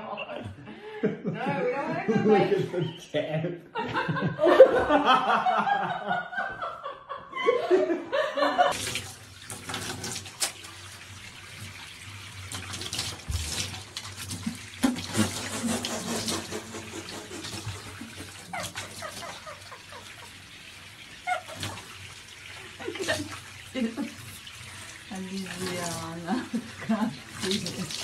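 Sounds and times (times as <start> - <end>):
tap water trickling into tub: 8.7 - 28.0.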